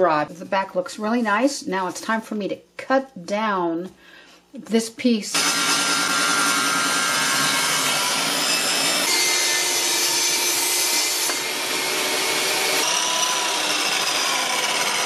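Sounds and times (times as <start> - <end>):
power saws cutting wood: 5.3 - 15.0.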